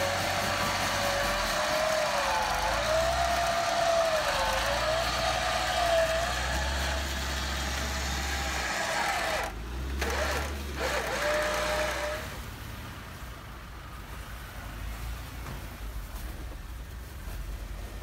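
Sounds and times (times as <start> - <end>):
electric winch whining: 0.0 - 12.4.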